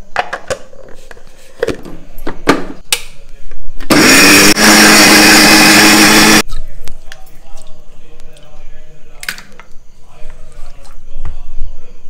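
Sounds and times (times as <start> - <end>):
electric mixer grinder running: 3.9 - 6.4.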